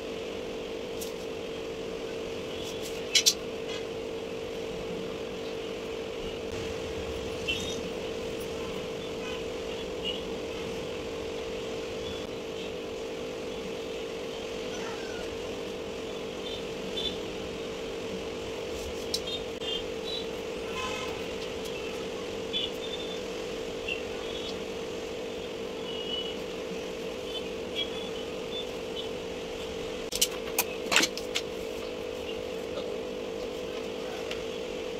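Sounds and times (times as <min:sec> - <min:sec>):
steady background hum: 0:00.0 - 0:34.9.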